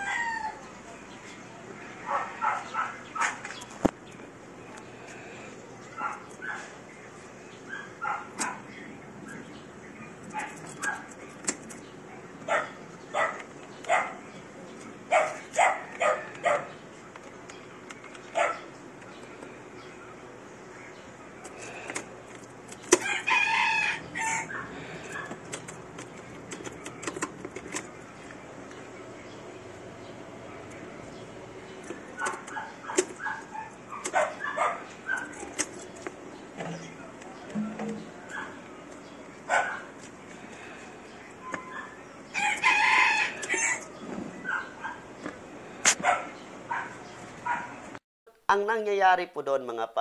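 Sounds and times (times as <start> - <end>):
rooster crowing: 0.0 - 0.7, 23.0 - 25.3, 42.3 - 43.9.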